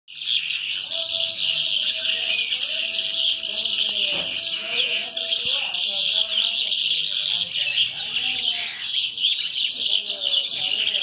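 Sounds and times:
birds chirping chorus: 0.1 - 11.0.

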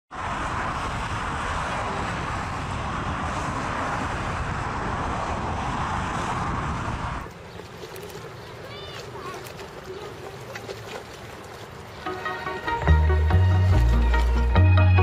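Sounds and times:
wind rumble on microphone: 0.1 - 8.1.

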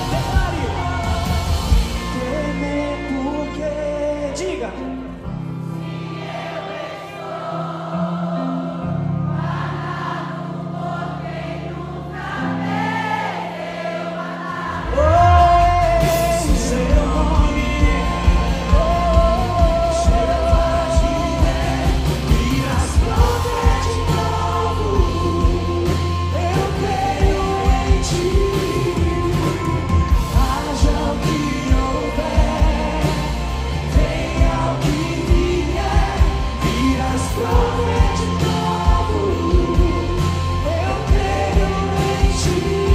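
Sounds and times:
backing vocalists: 0.0 - 4.3, 5.6 - 42.9
man singing lead: 0.0 - 5.1, 14.8 - 42.9
electric band playing: 0.0 - 42.9.

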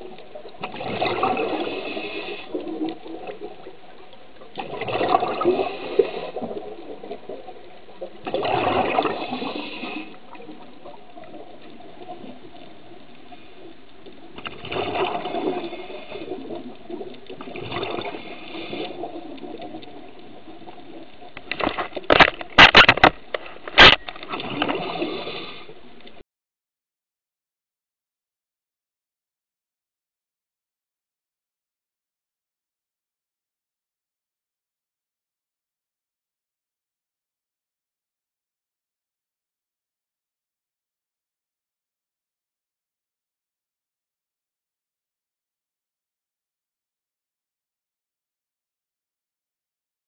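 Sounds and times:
exhaled bubbles gurgling underwater: 0.0 - 22.1, 24.2 - 26.2.

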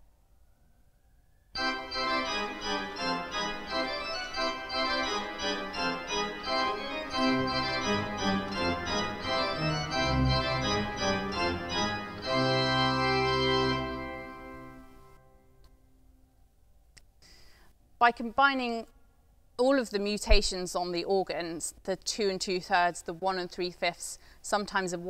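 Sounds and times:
low bass organ notes: 1.6 - 15.2
pipe organ playing: 1.6 - 15.3.

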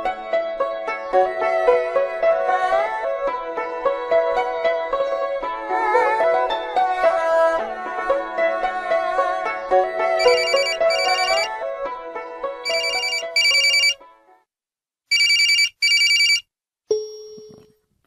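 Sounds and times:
background music: 0.0 - 14.4
cell phone ringing: 10.2 - 11.5, 12.7 - 14.0, 15.1 - 17.6
single tone: 16.9 - 17.8.

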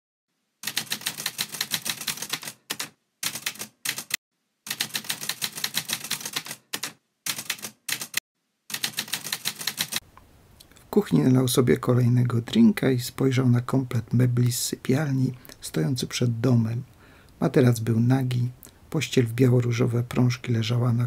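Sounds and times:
manual typewriter typing: 0.6 - 10.0.

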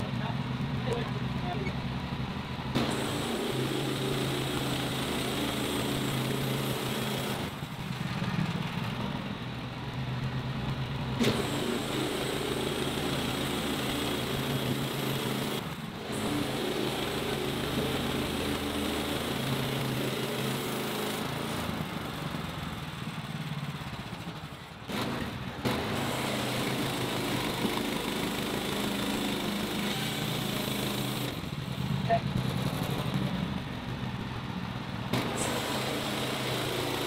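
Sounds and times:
band saw cutting wood: 2.8 - 7.6, 11.2 - 21.8, 24.9 - 31.6, 35.1 - 37.0.

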